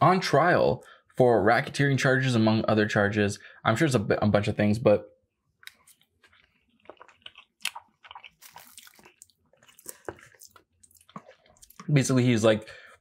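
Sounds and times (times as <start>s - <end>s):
mouth clicks and smacks: 5.6s - 11.9s
close-up chewing: 5.7s - 11.9s.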